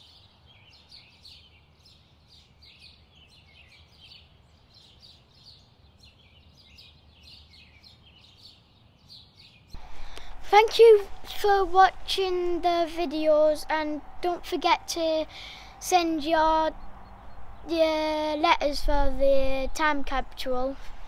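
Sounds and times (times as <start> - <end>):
small birds chirping: 0.0 - 10.4, 15.2 - 18.9
low background hum: 9.8 - 21.0.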